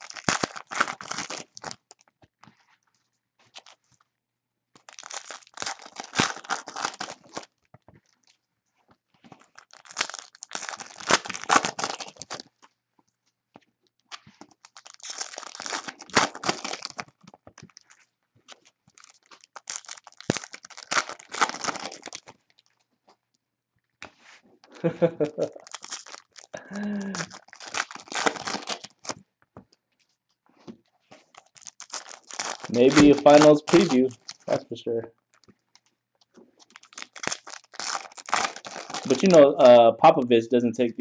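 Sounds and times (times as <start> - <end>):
card pack wrappers tearing: 0.0 - 2.0, 4.8 - 7.5, 9.4 - 12.6, 14.1 - 17.9, 18.5 - 22.7, 24.6 - 29.2, 31.2 - 34.7, 36.6 - 39.7.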